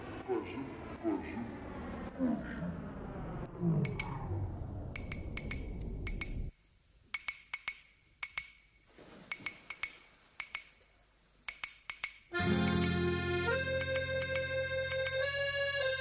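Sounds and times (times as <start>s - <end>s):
short sharp clicks: 3.8s - 4.2s
accordion music: 12.3s - 16.0s.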